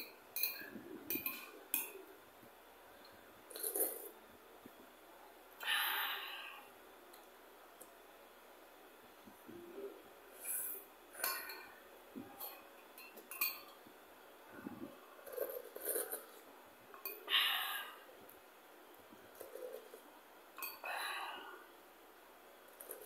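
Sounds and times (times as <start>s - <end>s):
metal spoon clinking on ceramic bowl: 13.0s - 13.8s.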